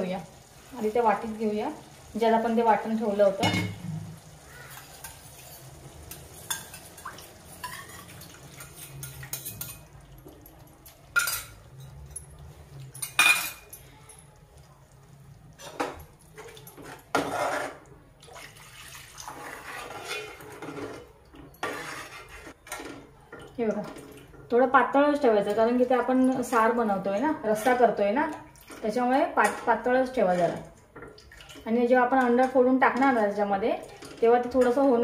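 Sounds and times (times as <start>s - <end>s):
water pouring: 0.0s - 22.5s, 30.2s - 31.7s
liquid sloshing: 6.4s - 24.4s, 30.2s - 32.5s.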